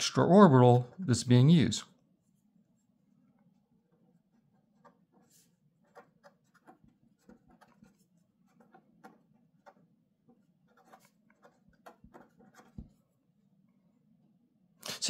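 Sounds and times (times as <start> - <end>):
pen scratching on paper: 3.5 - 13.0.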